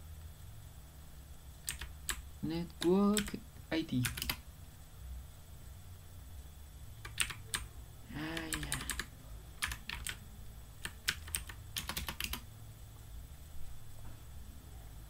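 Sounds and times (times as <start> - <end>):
keyboard typing: 1.6 - 2.2, 2.8 - 4.4, 7.0 - 10.2, 10.8 - 12.5.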